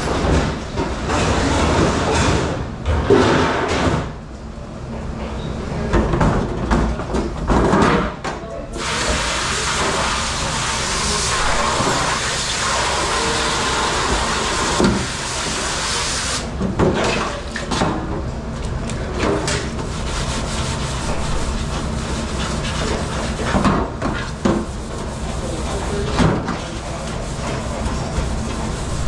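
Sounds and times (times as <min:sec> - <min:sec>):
water spraying hard: 0:08.8 - 0:16.5.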